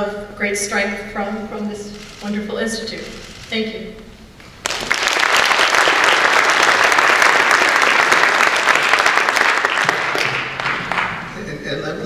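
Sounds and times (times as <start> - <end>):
audience applauding: 4.6 - 11.4.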